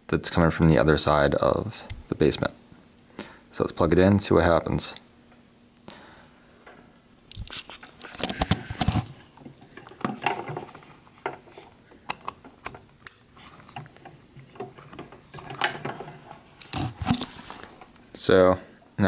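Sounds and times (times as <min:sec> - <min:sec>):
cable handling clicks and scrapes: 0:07.3 - 0:18.0.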